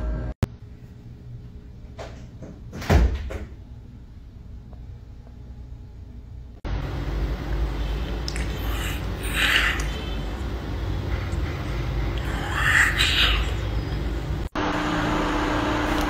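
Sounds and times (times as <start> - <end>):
low rumbling background noise: 0.0 - 14.6
kitten mewing: 8.3 - 10.4, 12.2 - 13.7.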